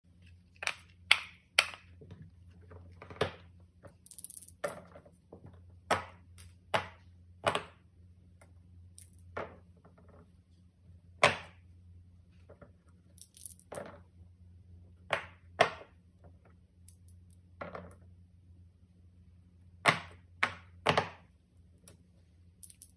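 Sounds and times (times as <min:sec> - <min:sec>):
low steady hum: 0:00.1 - 0:22.9
dice rattling in hand: 0:22.6 - 0:22.9.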